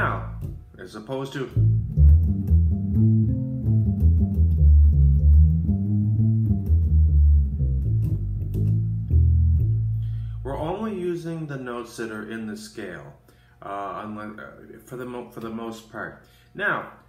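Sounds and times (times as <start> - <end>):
electric bass plucked notes: 0.0 - 0.8, 1.4 - 11.0.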